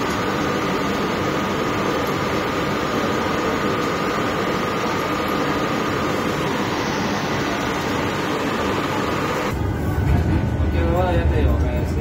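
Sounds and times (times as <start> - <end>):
thin steady whine: 0.0 - 12.0
train rush and rumble: 6.2 - 12.0.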